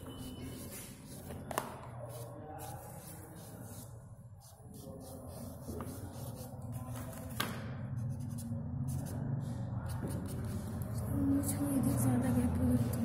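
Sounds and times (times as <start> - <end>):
charcoal rubbing on paper: 0.0 - 7.0.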